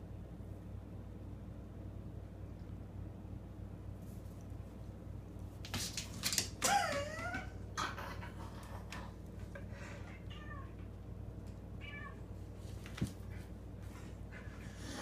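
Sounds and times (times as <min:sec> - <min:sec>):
cat meowing: 0:10.1 - 0:10.8, 0:11.8 - 0:12.2.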